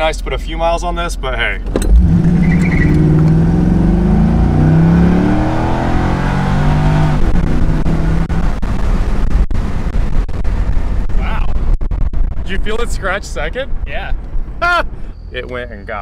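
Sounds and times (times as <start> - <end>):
road and wind noise: 0.0 - 16.0
car engine accelerating hard: 1.8 - 10.9.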